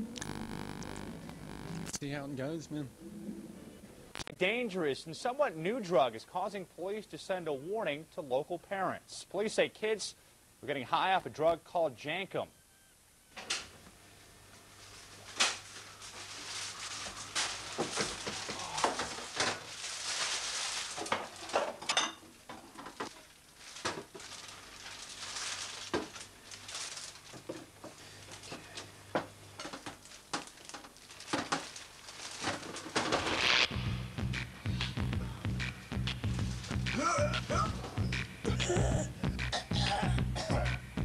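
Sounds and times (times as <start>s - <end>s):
faint low hum: 0.0s - 32.8s.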